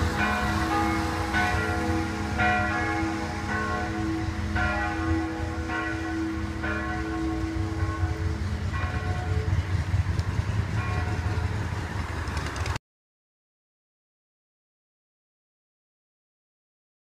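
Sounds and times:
church bells ringing: 0.0 - 12.1.

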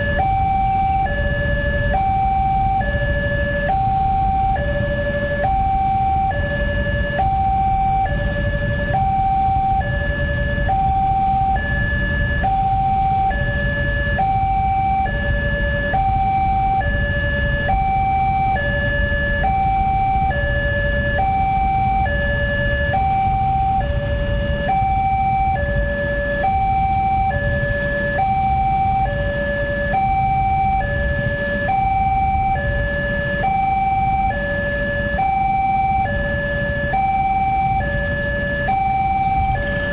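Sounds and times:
two-tone level crossing alarm: 0.0 - 39.9.

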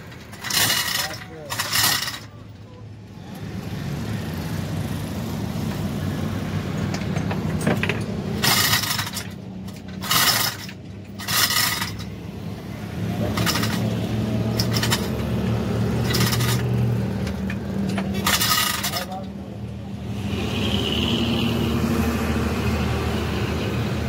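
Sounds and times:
chains clinking and rattling: 0.1 - 2.4, 7.7 - 12.2, 13.2 - 15.3, 15.9 - 16.9, 18.1 - 19.3.

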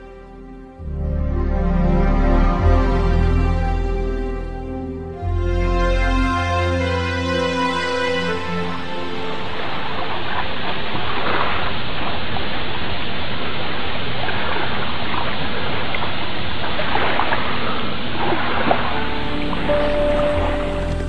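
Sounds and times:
water washing like gentle surf: 6.4 - 21.0.

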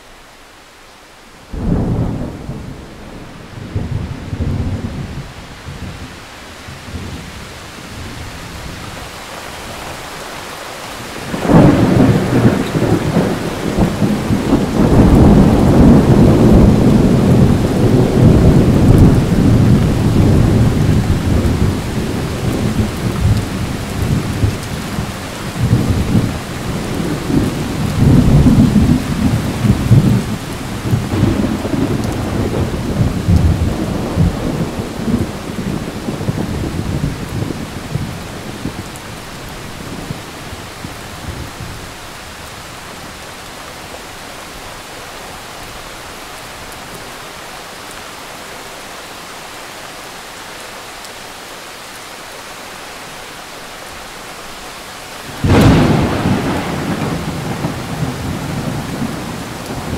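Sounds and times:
rain hiss: 0.0 - 59.9
thunder rumbling: 1.5 - 8.2, 11.2 - 39.0, 55.3 - 59.9.

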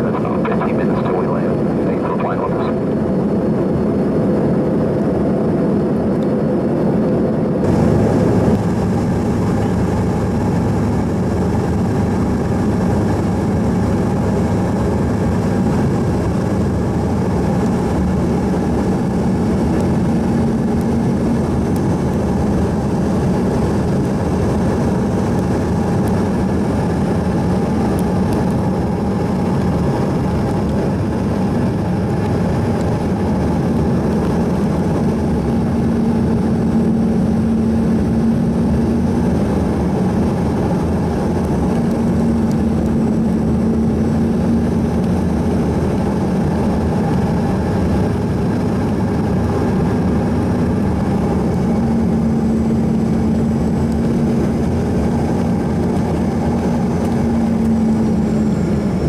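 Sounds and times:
jet cabin drone: 0.0 - 59.0.

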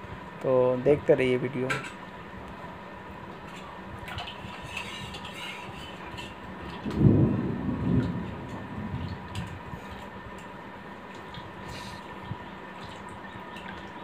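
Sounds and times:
deep low rumble: 6.8 - 10.1.

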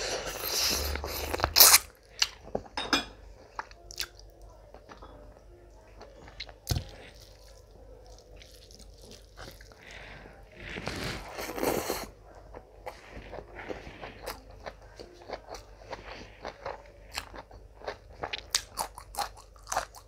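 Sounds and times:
chewing with crunching clicks: 11.6 - 20.0.

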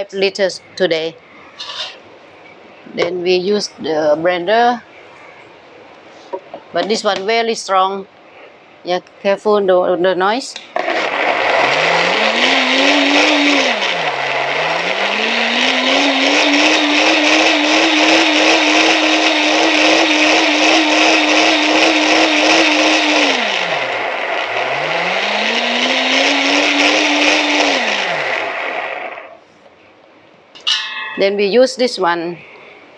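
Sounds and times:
blender motor whining: 10.8 - 29.3.

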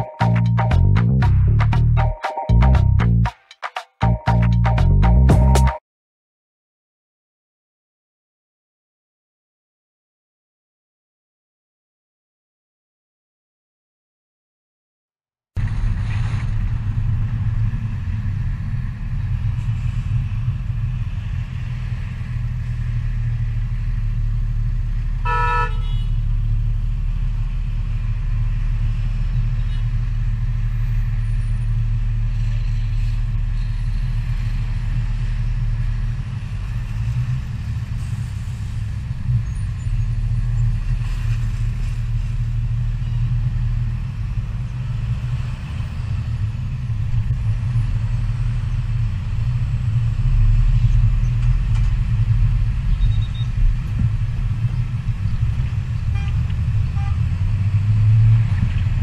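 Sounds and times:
car engine and road noise: 0.0 - 5.8, 15.6 - 59.0
car horn toot: 25.2 - 26.2, 56.1 - 56.4.

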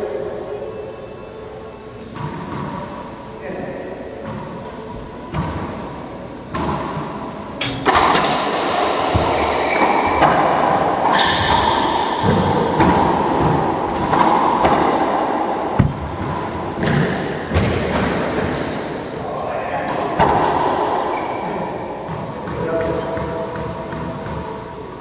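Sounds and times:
racquetball hits echoing: 2.1 - 3.1, 5.3 - 5.8, 6.5 - 24.6.

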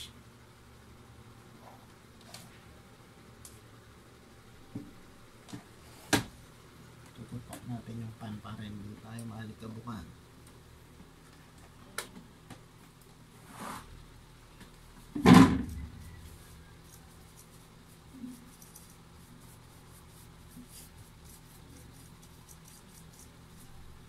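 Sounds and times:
brush scratching on laptop fan: 16.0 - 24.0.

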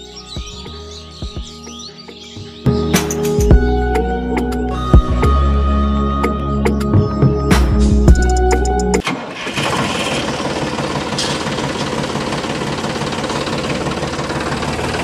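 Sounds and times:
tractor engine chugging: 9.0 - 15.0.

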